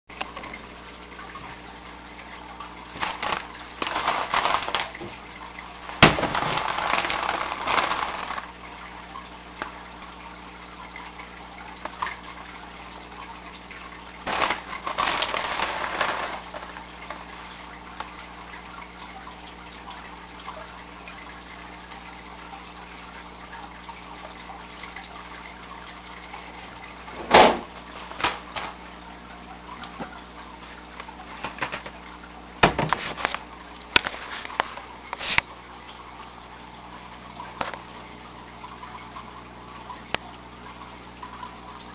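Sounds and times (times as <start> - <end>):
aquarium equipment hum: 0.1 - 41.9
fish splashing at water surface: 2.6 - 10.5, 13.8 - 19.1, 26.0 - 30.1.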